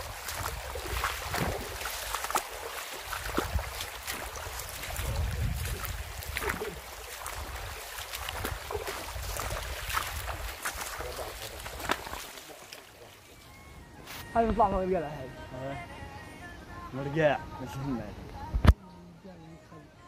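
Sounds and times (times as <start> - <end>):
wind buffeting microphone: 0.0 - 2.4, 3.0 - 12.0
shallow running water: 0.0 - 13.8
feet wading over stones: 0.0 - 14.8.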